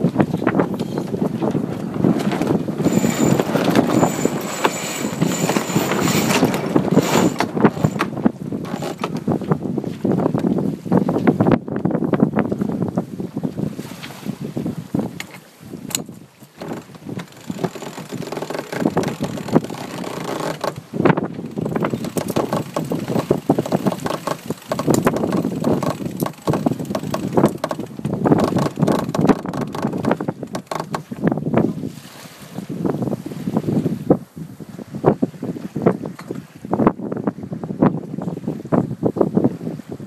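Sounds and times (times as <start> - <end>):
winch ratchet clicking: 2.8 - 8.1, 15.9 - 20.8, 21.5 - 31.0.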